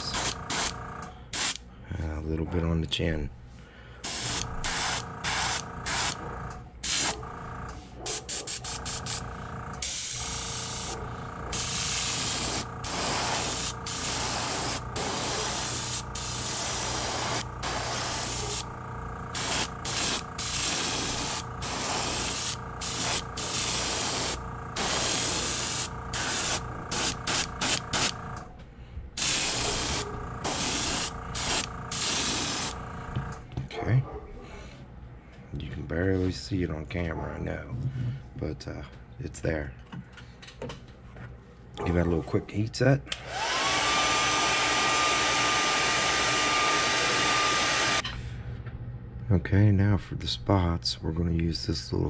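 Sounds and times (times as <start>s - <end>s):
airbrush hissing in bursts: 0.0s - 1.6s, 4.0s - 6.2s, 6.8s - 7.1s, 8.2s - 18.7s, 19.3s - 28.2s, 29.2s - 32.8s
steady hum: 0.0s - 2.3s, 2.9s - 33.6s.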